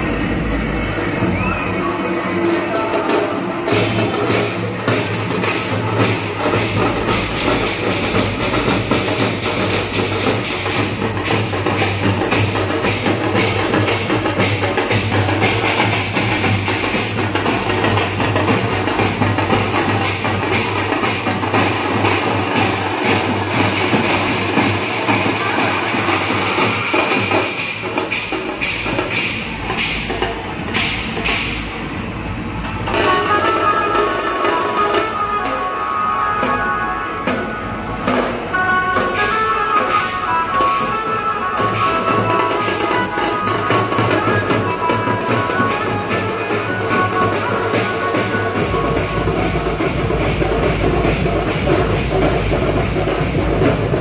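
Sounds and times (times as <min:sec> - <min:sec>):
large hand drums beating: 0:00.0 - 0:54.0
sharp cymbal crashes: 0:02.4 - 0:35.8.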